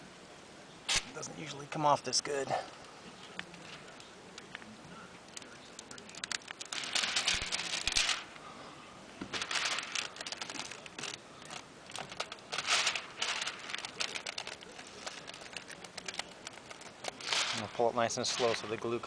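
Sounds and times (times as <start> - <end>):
window film peeling crackle: 5.2 - 8.4, 9.3 - 18.9.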